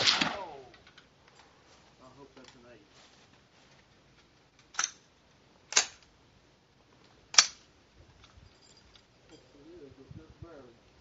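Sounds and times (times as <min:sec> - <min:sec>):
rifle shots: 0:00.0 - 0:00.7.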